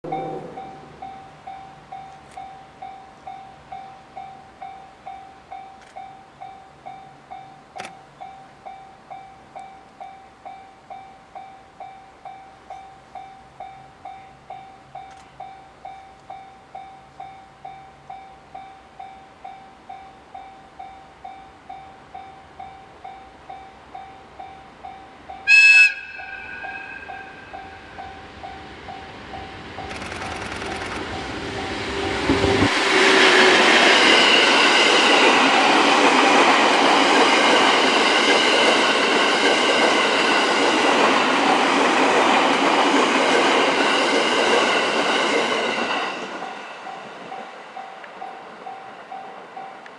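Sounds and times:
level crossing alarm dinging: 0.0 - 3.5
train running noise: 0.0 - 49.9
locomotive whistle blast: 25.4 - 27.6.

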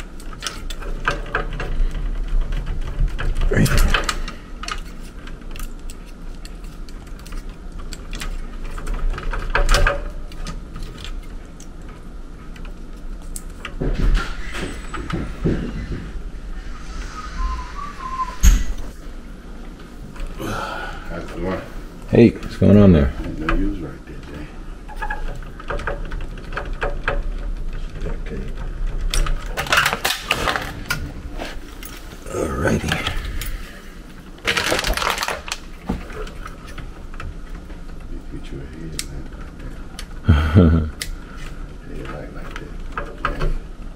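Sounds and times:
wire connectors clicking and rattling: 0.0 - 16.0, 21.2 - 32.1, 32.8 - 40.2, 40.9 - 43.9
steady low hum: 0.0 - 43.9
scraping and rustling: 21.2 - 40.0.

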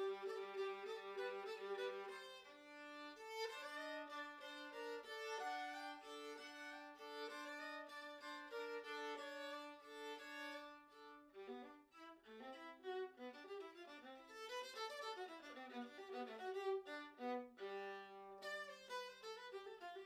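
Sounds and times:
bowed strings music: 0.0 - 20.0.

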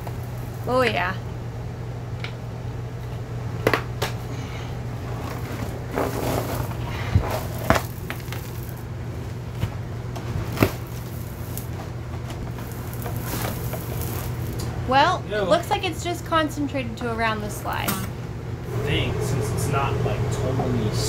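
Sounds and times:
steady low hum: 0.0 - 21.0
linoleum peeling crackles and snaps: 5.1 - 14.7.

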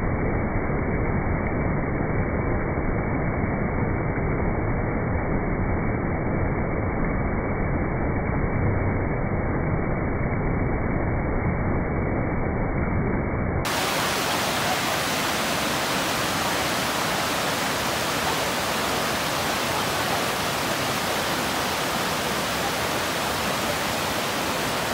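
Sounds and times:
waterfall rushing over boulders: 13.7 - 24.9.

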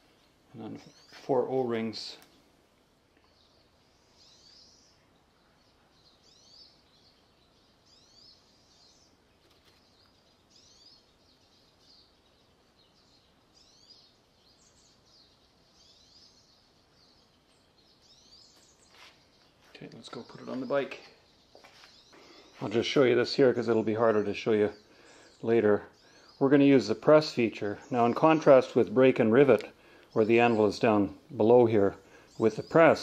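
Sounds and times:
faint bird chirps: 0.0 - 2.5, 3.1 - 28.8.

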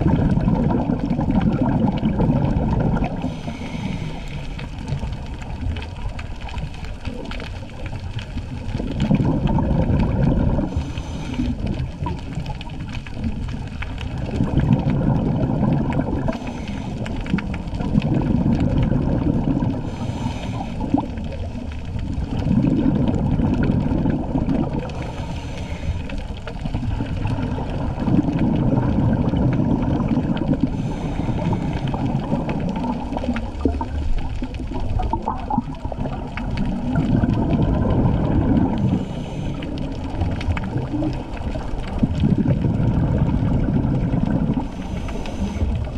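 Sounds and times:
exhaled bubbles gurgling underwater: 0.0 - 45.9
regulator inhalation hiss: 3.2 - 4.7, 10.7 - 11.6, 16.3 - 17.1, 19.8 - 21.0, 24.9 - 26.2, 30.7 - 32.2, 44.6 - 45.7.

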